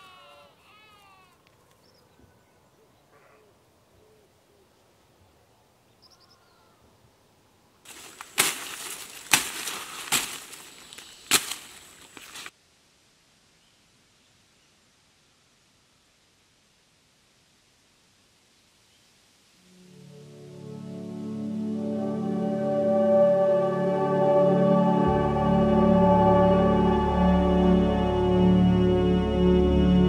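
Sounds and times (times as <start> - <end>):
faint animal calls: 0.0 - 4.8, 6.0 - 7.0
rustling vegetation: 0.0 - 20.6
machete chopping undergrowth: 7.9 - 12.5.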